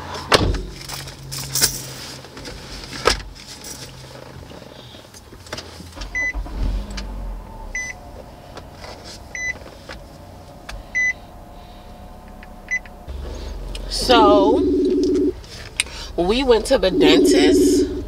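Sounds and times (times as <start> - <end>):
car warning chime beeping: 6.1 - 6.4, 7.7 - 8.0, 9.3 - 9.6, 10.9 - 11.2, 12.4 - 13.0, 13.8 - 15.4, 16.2 - 18.0.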